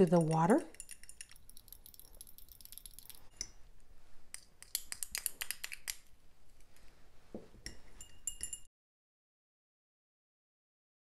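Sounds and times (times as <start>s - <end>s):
metal spatula clinking on glass: 0.0s - 3.6s, 7.6s - 8.7s.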